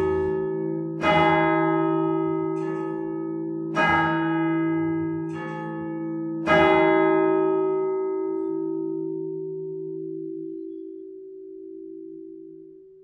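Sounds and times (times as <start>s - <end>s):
heavy clock bell strokes: 0.0s - 7.4s.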